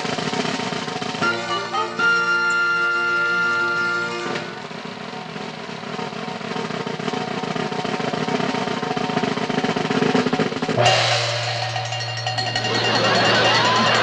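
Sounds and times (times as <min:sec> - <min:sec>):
snare drum roll: 0:00.0 - 0:14.0
gong struck with padded mallet: 0:10.8 - 0:14.0.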